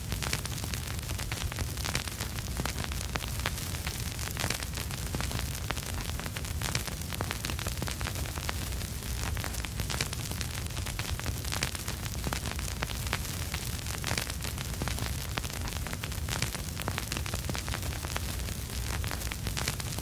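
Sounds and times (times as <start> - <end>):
steady hiss: 0.0 - 20.0
vinyl crackle and pops: 0.0 - 20.0.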